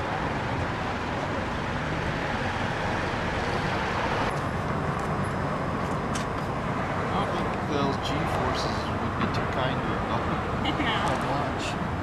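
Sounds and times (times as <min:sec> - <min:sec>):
road traffic hum: 0:00.0 - 0:12.0.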